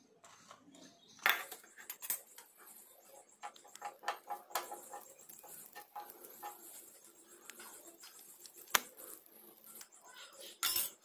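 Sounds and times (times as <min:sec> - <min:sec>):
butter crackling in pan: 0:01.4 - 0:11.0
spoon clinking against pan: 0:10.4 - 0:11.0.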